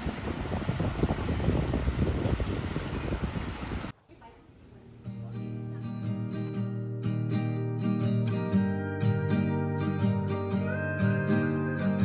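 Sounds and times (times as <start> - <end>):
acoustic guitar strumming: 5.0 - 12.0.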